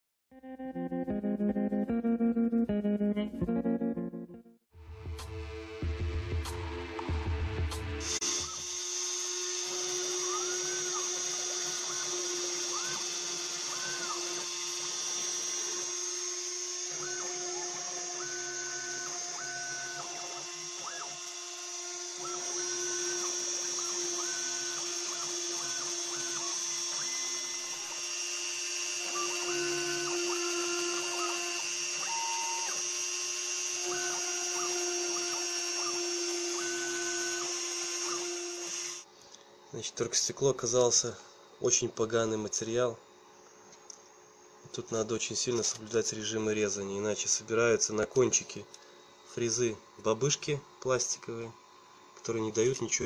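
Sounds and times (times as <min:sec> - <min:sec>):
router spindle whine: 0:08.0 - 0:39.1
stepper motors whining: 0:08.0 - 0:39.1.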